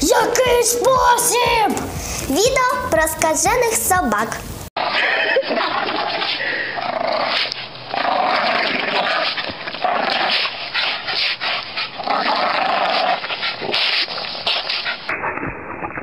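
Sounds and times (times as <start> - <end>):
dog growling: 4.8 - 15.1.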